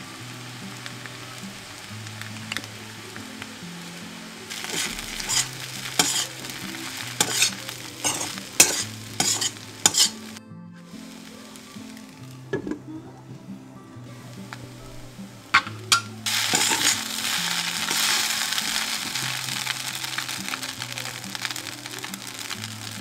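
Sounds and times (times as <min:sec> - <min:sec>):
food sizzling in a pan: 0:00.0 - 0:12.9, 0:14.0 - 0:23.0
metal spatula scraping a pan: 0:04.5 - 0:10.4, 0:15.6 - 0:19.0.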